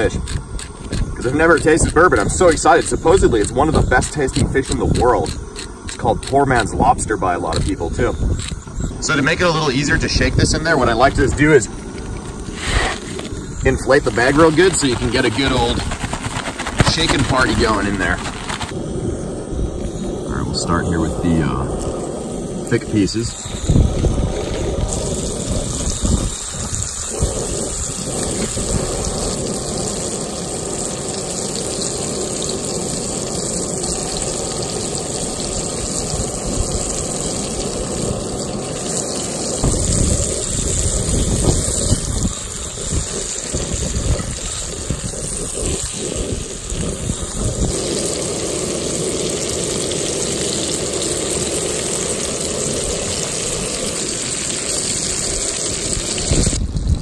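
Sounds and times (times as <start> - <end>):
fish fillets sizzling in oil: 0.0 - 18.9, 21.3 - 57.0
wind buffeting microphone: 23.3 - 29.4, 39.4 - 47.9, 55.5 - 57.0.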